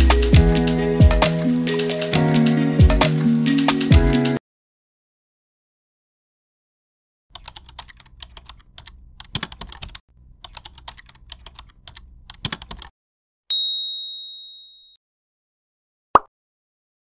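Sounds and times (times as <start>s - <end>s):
rapid keyboard typing clicks: 0.1s - 4.4s, 7.4s - 12.9s
bright ding: 13.5s - 15.0s.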